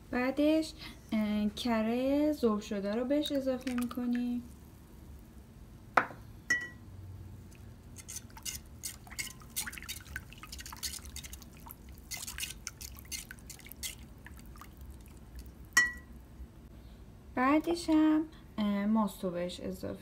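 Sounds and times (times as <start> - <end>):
whisk beating egg mixture: 8.0 - 15.4.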